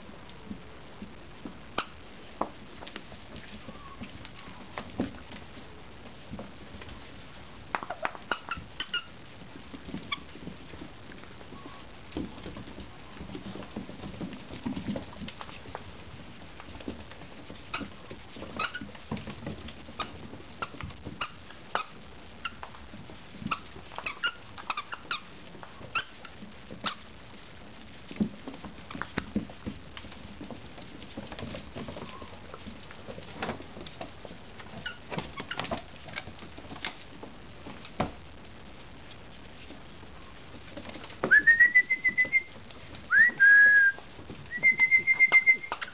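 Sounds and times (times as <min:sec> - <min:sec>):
paws scuffling on wooden floor: 0:00.0 - 0:45.9
puppies squeaking: 0:43.1 - 0:45.9.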